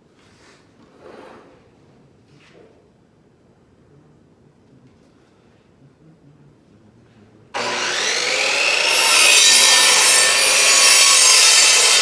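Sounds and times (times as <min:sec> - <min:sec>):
miter saw motor whine: 0:07.6 - 0:12.0
saw blade cutting wood: 0:07.6 - 0:12.0.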